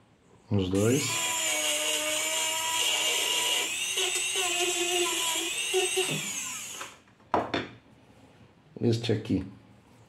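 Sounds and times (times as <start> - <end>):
rotary tool high whine: 0.8 - 7.0.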